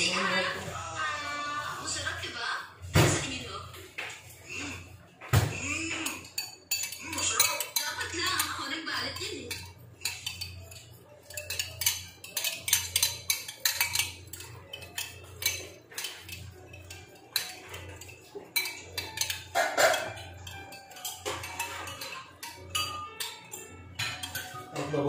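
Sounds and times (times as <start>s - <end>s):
metal spoon clinking glass bowl: 5.7s - 25.0s.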